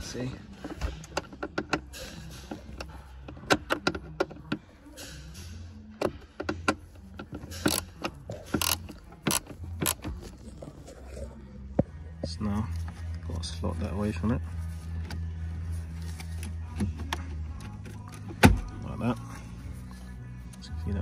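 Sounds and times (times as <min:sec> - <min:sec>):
socket ratchet clicking: 0:06.4 - 0:10.1.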